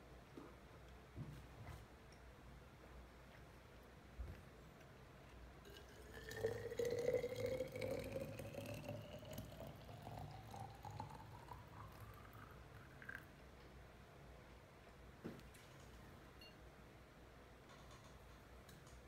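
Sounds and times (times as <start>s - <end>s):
liquid pouring into container: 5.7s - 13.4s.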